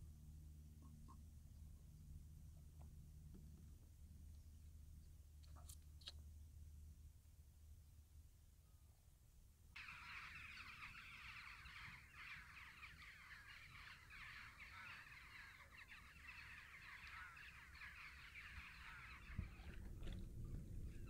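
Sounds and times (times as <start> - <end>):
flock of birds calling: 9.8 - 20.2.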